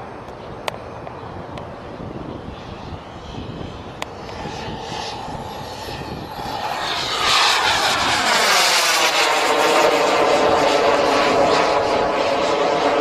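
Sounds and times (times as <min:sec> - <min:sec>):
model jet turbine hissing past: 0:02.0 - 0:13.0.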